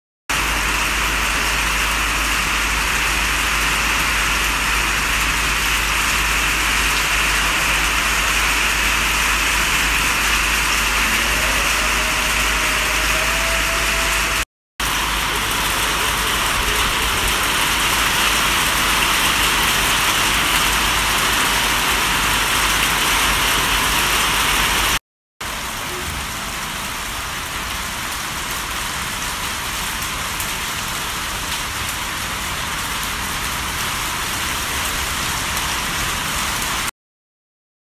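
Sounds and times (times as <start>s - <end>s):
steady rain falling: 0.3s - 36.9s.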